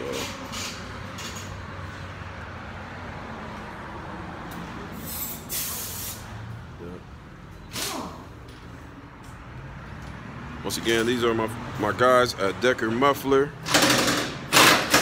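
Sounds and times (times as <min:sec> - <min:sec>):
short air hisses: 0:05.0 - 0:06.3.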